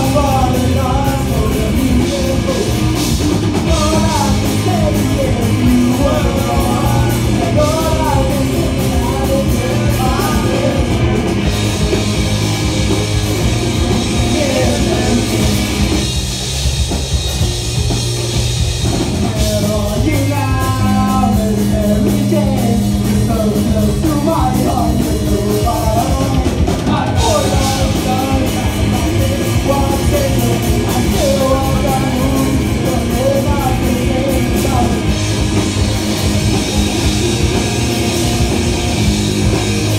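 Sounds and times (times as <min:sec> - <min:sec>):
person singing: 0:00.0 - 0:11.2, 0:13.9 - 0:15.7, 0:19.2 - 0:35.4
bass guitar: 0:00.0 - 0:39.9
drum kit with cymbals: 0:00.0 - 0:39.9
electric guitar: 0:00.0 - 0:39.9.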